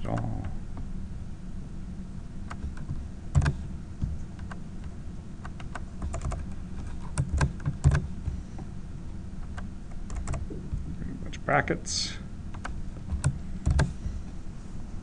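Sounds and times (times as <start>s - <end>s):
low steady hum: 0.0s - 15.0s
keyboard keys clicking: 2.5s - 8.4s, 9.4s - 11.0s, 12.5s - 14.0s.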